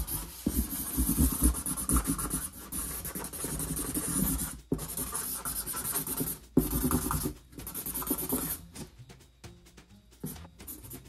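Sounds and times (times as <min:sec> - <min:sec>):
felt tip marker scribbling: 0:00.0 - 0:08.6.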